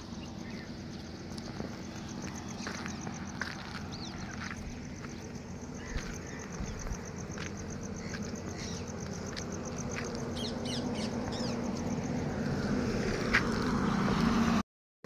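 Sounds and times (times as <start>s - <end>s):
small birds chirping: 0.0s - 12.6s
high insect trill: 0.0s - 14.3s
footsteps on gravel: 0.4s - 10.6s, 13.2s - 13.9s.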